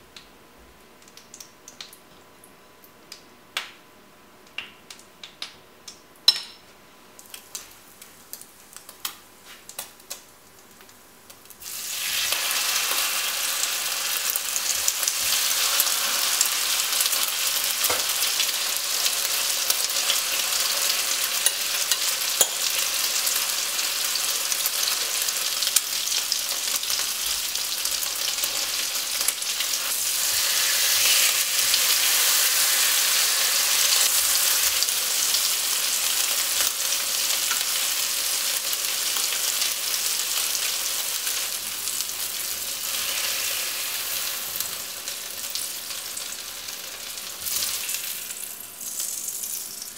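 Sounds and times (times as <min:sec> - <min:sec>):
bread sizzling in hot oil: 0:11.5 - 0:49.9.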